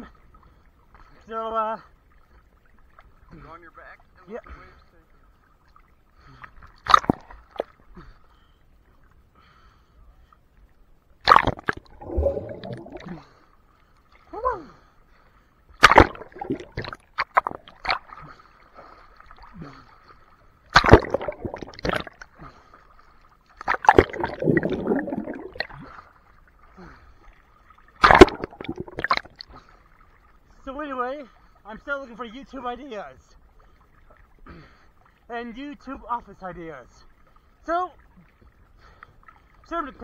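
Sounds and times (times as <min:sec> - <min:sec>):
water splashing and gurgling: 0:01.7 - 0:08.2, 0:11.2 - 0:15.0, 0:15.8 - 0:30.8
water slapping against camera: 0:06.5 - 0:07.8, 0:11.2 - 0:13.4, 0:15.8 - 0:19.7, 0:20.6 - 0:22.6, 0:23.5 - 0:26.1, 0:27.9 - 0:29.7
muffled underwater bubbling: 0:11.3 - 0:13.4, 0:15.8 - 0:18.4, 0:20.8 - 0:22.6, 0:23.6 - 0:26.0, 0:28.0 - 0:29.4.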